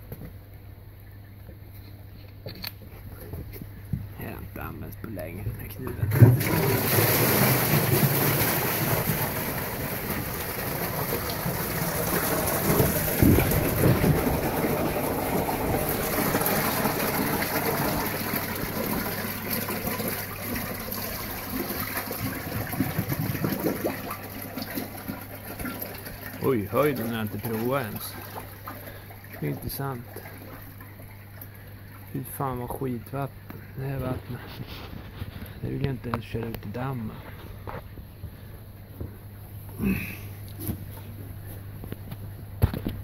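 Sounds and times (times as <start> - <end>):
water gushing and splashing: 6.0 - 32.1.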